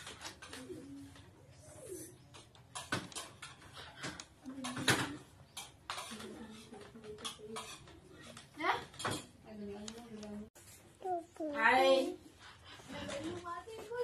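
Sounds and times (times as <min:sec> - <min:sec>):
dove cooing: 0:00.4 - 0:02.3.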